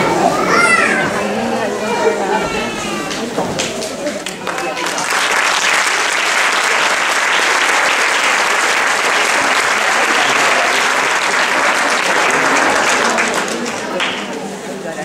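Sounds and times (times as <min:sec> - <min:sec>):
audience applause: 0:03.1 - 0:14.8.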